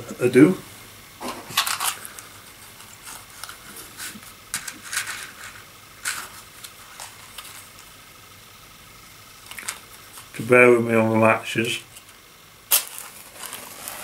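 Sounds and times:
scratchy matchbox handling: 1.6s - 7.9s.

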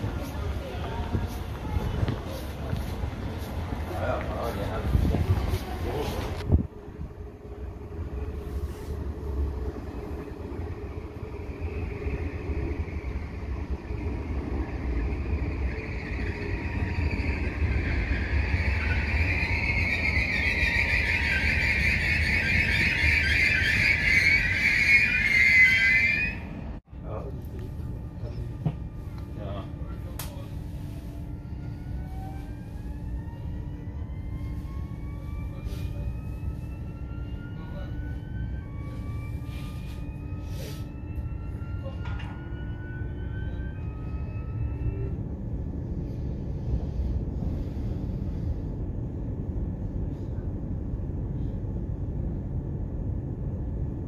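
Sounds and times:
low rolling rumble: 0.0s - 25.3s
electric train rumble and whine: 0.0s - 54.0s.

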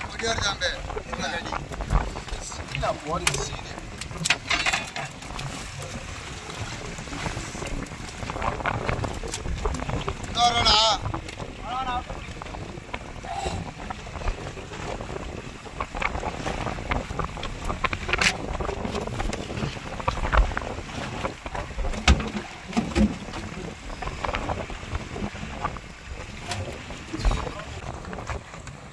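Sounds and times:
boat engine rumble: 0.0s - 28.9s
wind on microphone: 0.0s - 28.9s.

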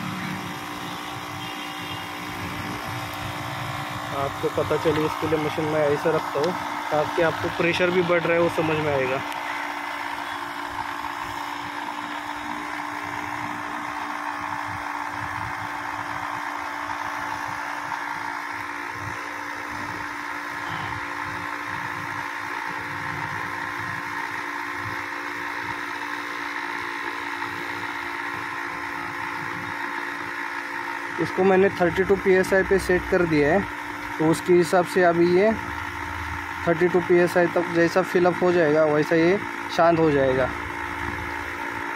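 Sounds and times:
car engine idling: 0.0s - 11.7s
air compressor humming: 0.0s - 41.9s.

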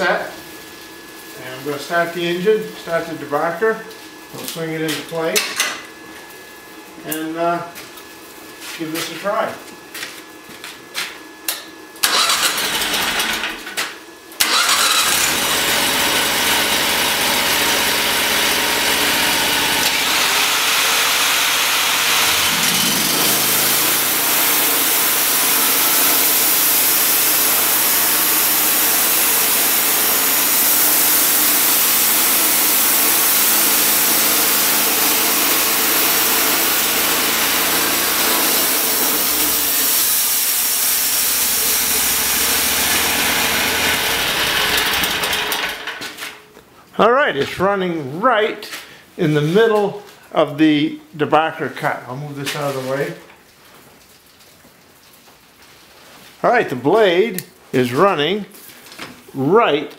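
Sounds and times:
sawmill engine cranking and running: 12.0s - 13.7s, 14.4s - 46.2s
grinder debarker whine: 14.4s - 26.8s.

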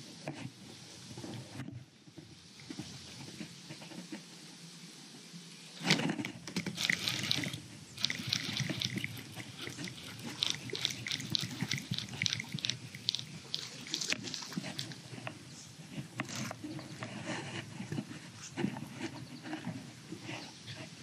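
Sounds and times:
water dripping and splattering: 6.7s - 15.0s
water splash: 6.7s - 15.0s.

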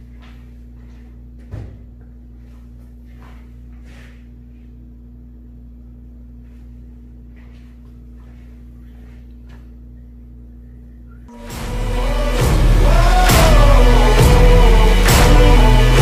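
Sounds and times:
steady low hum: 0.0s - 16.0s
music: 11.3s - 16.0s.

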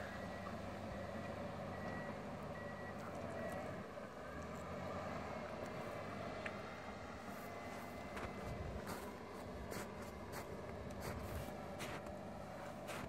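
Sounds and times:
reversing alarm beeping: 0.0s - 3.8s
distant bulldozer engine running: 0.0s - 13.0s.

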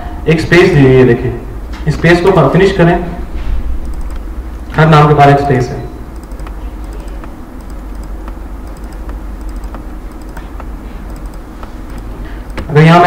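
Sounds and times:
low steady hum: 0.0s - 13.0s
computer keyboard keystrokes: 3.8s - 4.8s, 6.1s - 13.0s.

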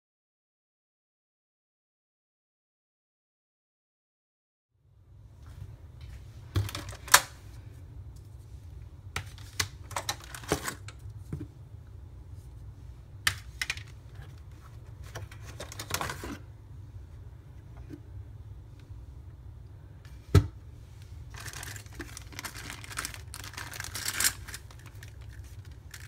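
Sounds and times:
steady low hum: 4.8s - 26.0s
plastic pieces clicking and knocking: 21.4s - 26.0s.

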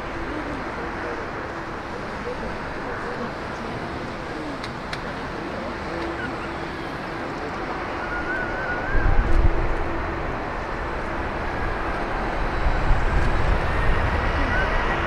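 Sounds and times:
jet airliner engines: 0.0s - 15.0s
wind buffeting microphone: 0.0s - 15.0s.

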